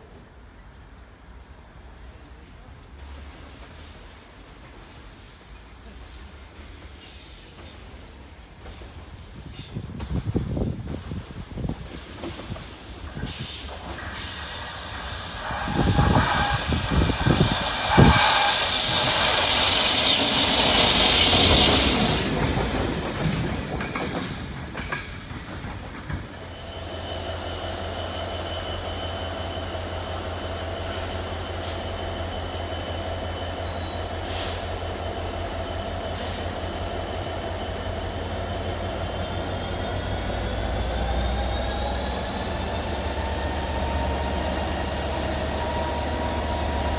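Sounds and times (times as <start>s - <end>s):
diesel locomotive passing: 0.0s - 46.9s
train wheel squeal: 6.5s - 8.0s, 12.0s - 22.6s, 26.3s - 46.9s.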